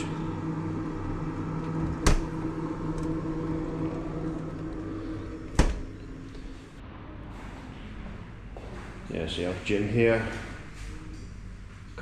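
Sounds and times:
steady low hum: 0:00.0 - 0:12.0
refrigerator door thud: 0:05.5 - 0:06.0.

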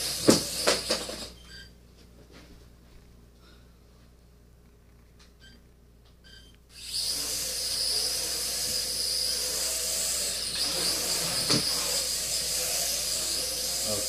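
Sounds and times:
quadcopter buzzing whine: 0:06.7 - 0:14.0.

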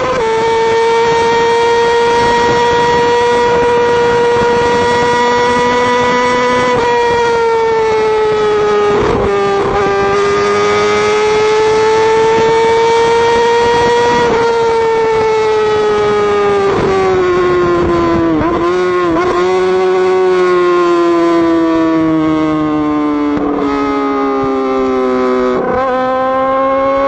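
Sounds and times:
motorcycle engine high revs whine: 0:00.0 - 0:27.0.

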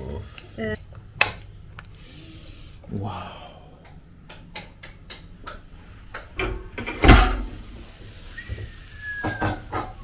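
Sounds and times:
kitchen knocks: 0:06.4 - 0:07.5, 0:09.2 - 0:10.0.

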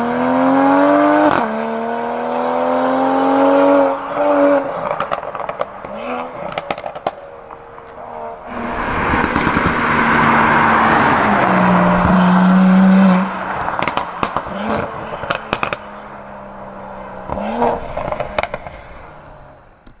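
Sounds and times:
car engine accelerating hard: 0:00.0 - 0:19.9
exhaust pops and crackles: 0:04.8 - 0:20.0.

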